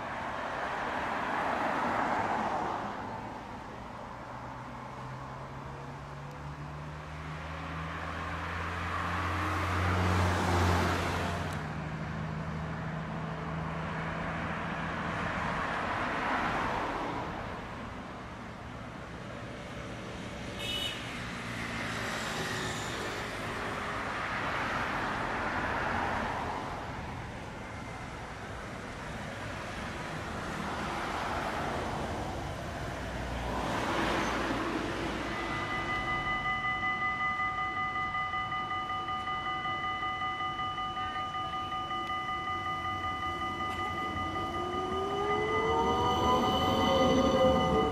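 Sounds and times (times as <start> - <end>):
cars passing: 0.0 - 47.9
trams rolling past: 22.0 - 47.9
click with high ring: 35.4 - 45.0.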